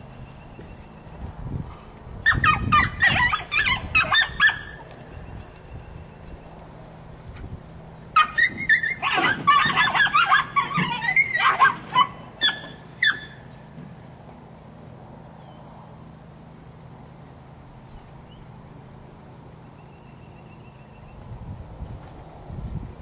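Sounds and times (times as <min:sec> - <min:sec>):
steady low hum: 0:00.0 - 0:23.0
dog barking: 0:02.3 - 0:04.8, 0:08.2 - 0:13.4.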